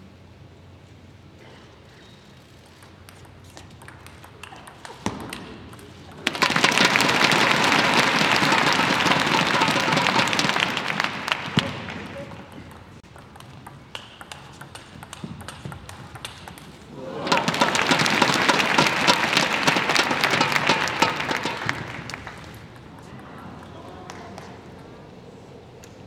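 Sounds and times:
ball clicking on bat and table: 0:02.6 - 0:07.6, 0:11.4 - 0:24.9
arena crowd noise: 0:04.4 - 0:13.1, 0:16.7 - 0:26.0
crowd cheering loudly: 0:06.2 - 0:12.6, 0:16.9 - 0:25.5.

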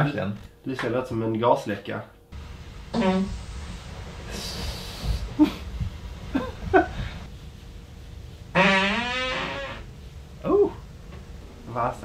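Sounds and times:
long buzzing fart: 0:02.9 - 0:03.4, 0:08.5 - 0:09.9.

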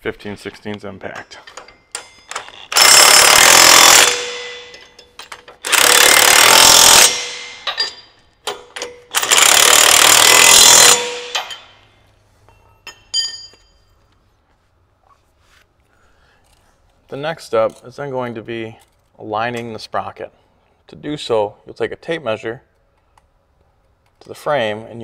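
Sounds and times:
impact wrench hammering nuts: 0:01.6 - 0:11.8
metallic clinks of tools: 0:12.5 - 0:13.9.

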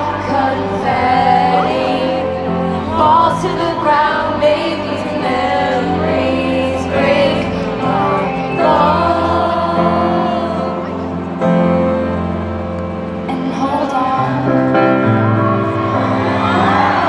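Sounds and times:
woman singing a ballad: 0:00.0 - 0:11.1, 0:13.3 - 0:15.1
crowd singing along: 0:00.0 - 0:17.0
grand piano: 0:00.0 - 0:17.0.

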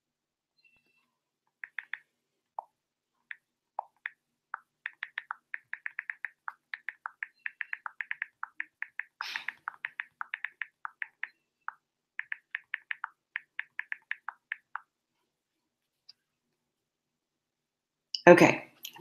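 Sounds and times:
phone keyboard clicks: 0:01.6 - 0:02.1, 0:03.3 - 0:14.9.

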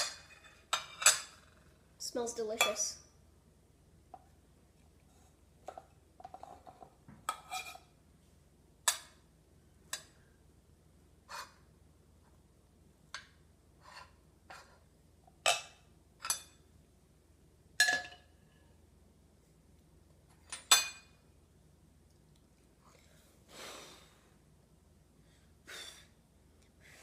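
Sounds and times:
cutlery clinking on plate and pot: 0:00.0 - 0:01.5, 0:15.4 - 0:16.6, 0:17.8 - 0:18.3, 0:20.4 - 0:21.2.

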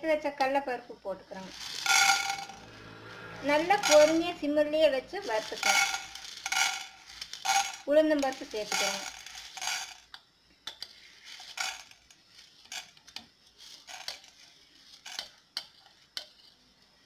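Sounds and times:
utensils clinking on frying pan: 0:05.4 - 0:09.9.

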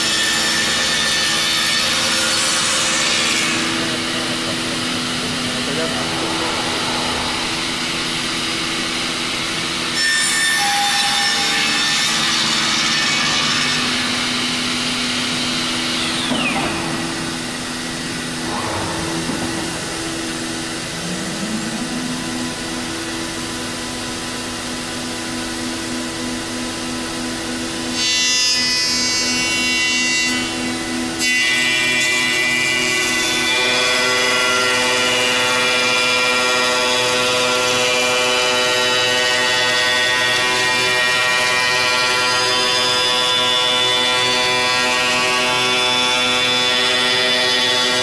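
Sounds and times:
router spindle whine: 0:00.0 - 0:28.0
wood cutting passes: 0:00.4 - 0:10.6, 0:11.2 - 0:23.6.

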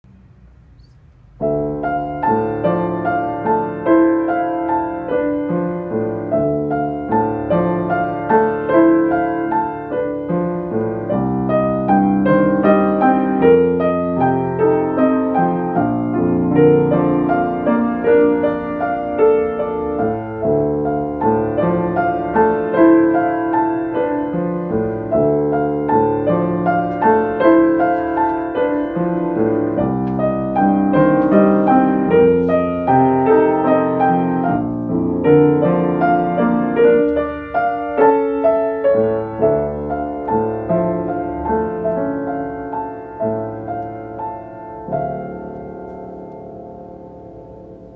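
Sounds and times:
solo piano playing: 0:00.0 - 0:47.9.

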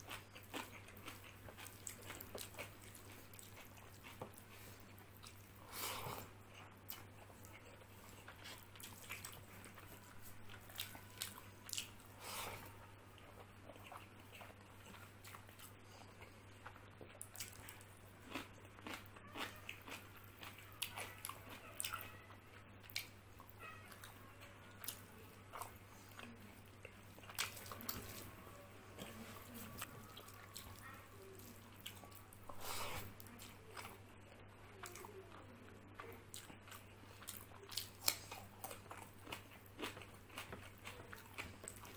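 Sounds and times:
close chewing and mouth sounds: 0:00.0 - 0:41.9
low steady hum: 0:00.0 - 0:41.9.

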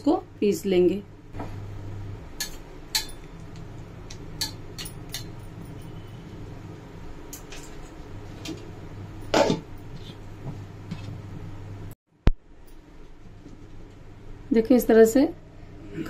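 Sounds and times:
metal spoon clinking on steel jar: 0:04.4 - 0:06.1.

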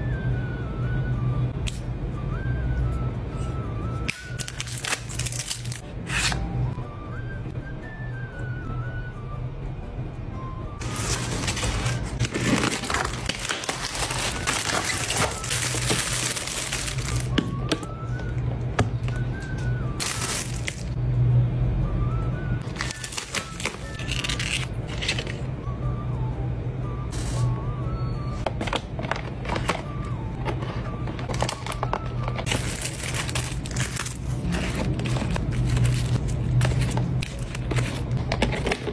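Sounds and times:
background music: 0:00.0 - 0:38.2
packaging crinkling and rustling: 0:04.3 - 0:05.8, 0:10.8 - 0:17.4, 0:20.0 - 0:20.9, 0:22.6 - 0:25.4, 0:30.9 - 0:38.9.

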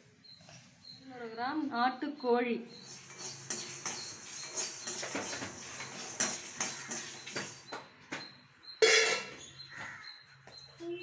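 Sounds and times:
metal spoon scraping spices in pan: 0:02.7 - 0:07.7
loud metal clank: 0:08.8 - 0:09.4.

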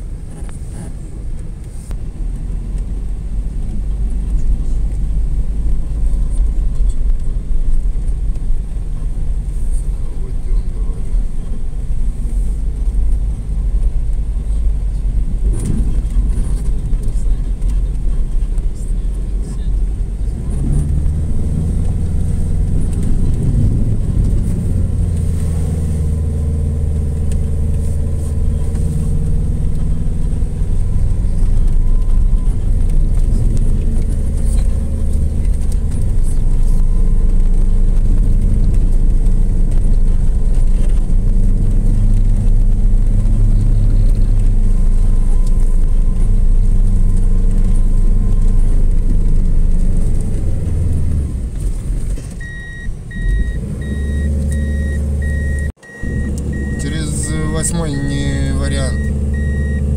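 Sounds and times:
vehicle engine and tyre drone: 0:00.0 - 0:59.9
short electronic beeps: 0:52.4 - 0:59.9.

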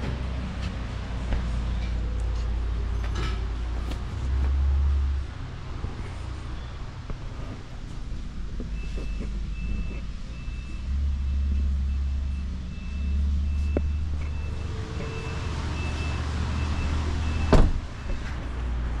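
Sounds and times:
vehicle warning chime beeping: 0:08.6 - 0:18.4
car door slamming: 0:17.4 - 0:18.3.

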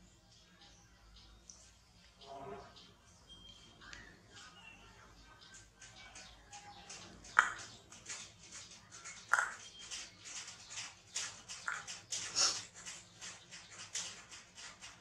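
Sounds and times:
plastic toy clicking and tapping: 0:05.5 - 0:15.0
sharp knocks on tile floor: 0:07.2 - 0:08.3, 0:09.3 - 0:09.7.

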